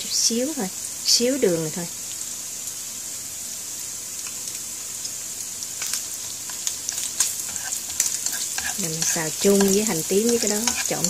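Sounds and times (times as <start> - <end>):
food sizzling in a frying pan: 0.0 - 11.0
faint crackles: 4.2 - 11.0.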